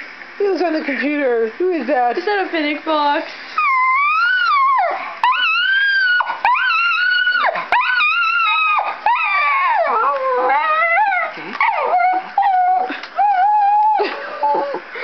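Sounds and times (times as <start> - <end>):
dog howling high-pitched: 3.6 - 14.7.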